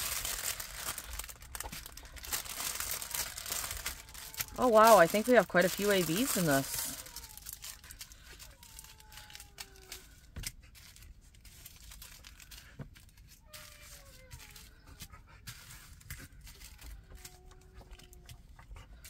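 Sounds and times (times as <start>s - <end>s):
plastic bags crinkling: 0.0s - 14.8s.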